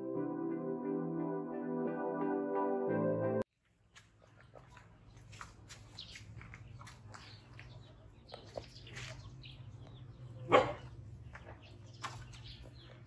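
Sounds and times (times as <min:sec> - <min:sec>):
puppy barking: 0:10.4 - 0:10.9.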